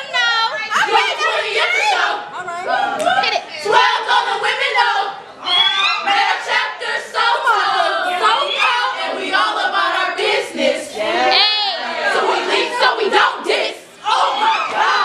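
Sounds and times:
women chanting in unison: 0:06.0 - 0:15.0.

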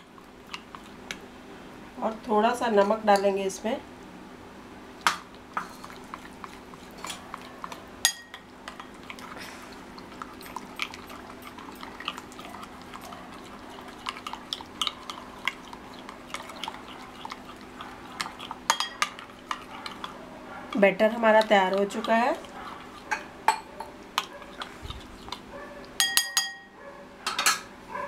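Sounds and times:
spoon stirring batter: 0:02.0 - 0:03.5, 0:05.3 - 0:26.6
spoon tapping glass bowl: 0:08.1 - 0:08.4, 0:18.7 - 0:19.1, 0:26.0 - 0:26.7.

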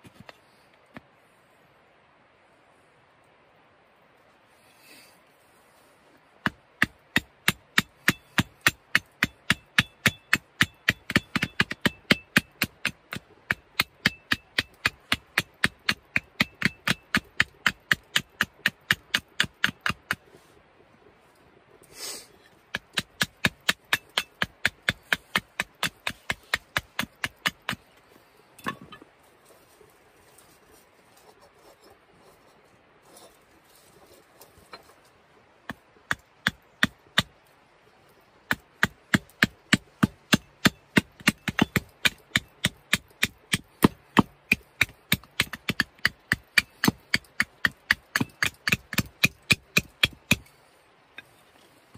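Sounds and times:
hatchet chopping wood: 0:06.4 - 0:20.2, 0:22.7 - 0:27.9, 0:35.7 - 0:37.4, 0:38.5 - 0:50.5.

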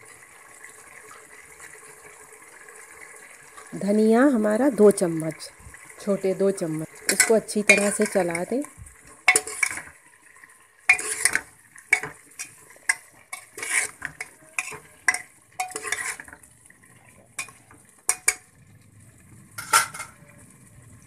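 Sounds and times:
oil sizzling: 0:00.0 - 0:21.0
spoon scraping metal pot: 0:07.0 - 0:08.6, 0:09.2 - 0:10.0, 0:10.9 - 0:16.4, 0:17.4 - 0:18.5, 0:19.6 - 0:20.2
spoon clinking against pot: 0:07.1 - 0:08.2, 0:09.3 - 0:09.9, 0:10.9 - 0:16.3, 0:17.4 - 0:18.5.

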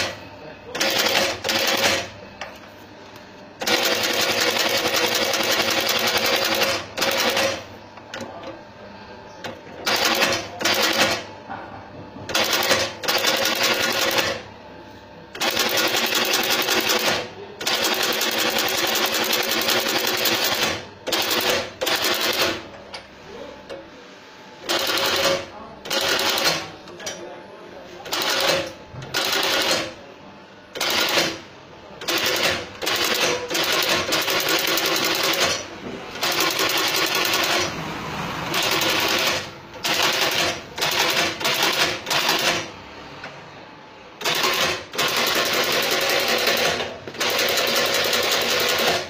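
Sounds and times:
stitching machine sewing rubber: 0:00.0 - 0:02.1, 0:03.6 - 0:07.6, 0:09.8 - 0:11.3, 0:12.3 - 0:14.4, 0:15.4 - 0:22.6, 0:24.6 - 0:26.7, 0:28.1 - 0:29.9, 0:30.8 - 0:31.4, 0:32.0 - 0:37.8, 0:38.4 - 0:42.7, 0:44.2 - 0:49.0
machine hum: 0:28.2 - 0:47.9.

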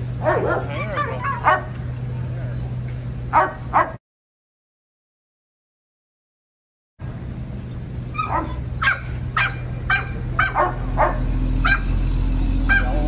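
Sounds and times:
steady low hum: 0:00.0 - 0:04.0, 0:07.0 - 0:13.0
dog barking: 0:00.2 - 0:01.8, 0:03.3 - 0:04.0, 0:08.2 - 0:12.0, 0:12.7 - 0:13.0.

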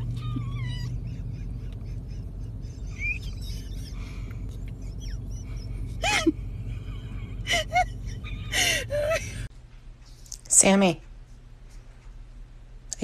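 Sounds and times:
dog squeaking grunts: 0:00.0 - 0:03.4
steady low hum: 0:00.0 - 0:13.0.

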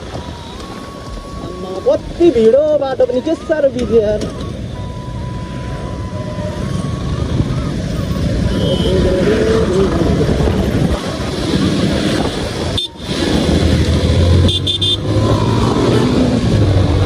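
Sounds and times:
road noise: 0:00.0 - 0:17.0
wind noise: 0:04.2 - 0:17.0
vehicle horns beeping: 0:08.4 - 0:09.5, 0:12.7 - 0:13.2, 0:14.4 - 0:15.2.

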